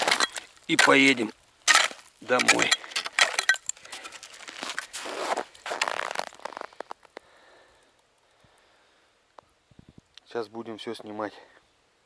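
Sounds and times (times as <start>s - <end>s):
ice crunching and scraping: 0.0s - 7.2s
hatchet clinking on ice: 1.7s - 4.8s.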